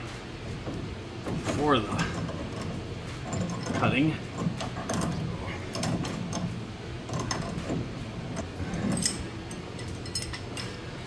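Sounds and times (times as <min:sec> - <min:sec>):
low steady hum: 0:00.0 - 0:11.0
light metallic clicks and clinks: 0:08.9 - 0:10.8.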